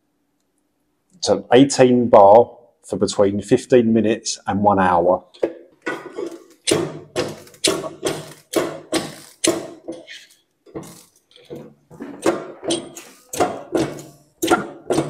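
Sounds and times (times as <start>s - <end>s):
hand pump squeaky strokes: 6.2s - 11.6s, 12.7s - 13.4s.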